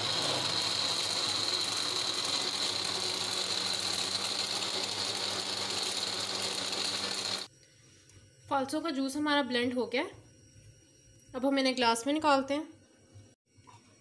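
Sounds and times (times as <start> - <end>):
blender motor whining: 0.0 - 7.5.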